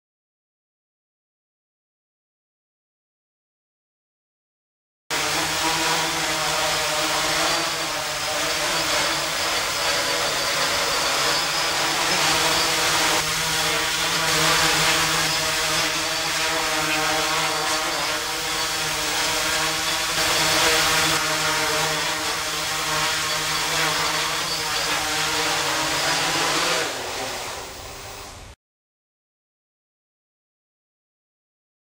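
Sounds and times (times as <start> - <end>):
quadrotor propellers whirring: 5.1 - 28.5.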